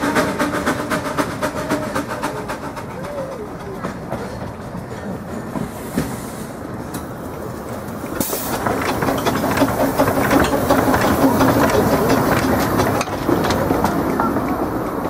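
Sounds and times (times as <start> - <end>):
steam locomotive running slowly: 0.0 - 15.0
rapid clicking of wheels: 6.9 - 15.0
steam hissing: 8.1 - 13.4.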